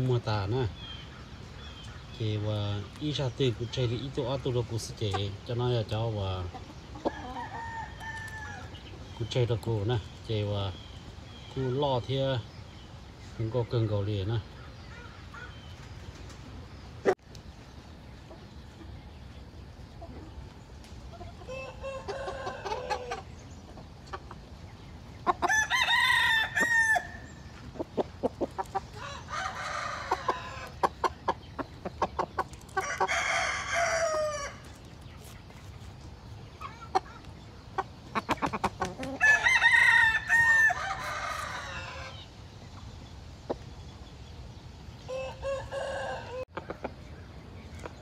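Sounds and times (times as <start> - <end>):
chickens clucking: 0.0 - 48.0
roosters crowing: 6.3 - 9.1, 21.1 - 23.6, 25.2 - 34.8, 38.3 - 42.4, 45.0 - 47.0.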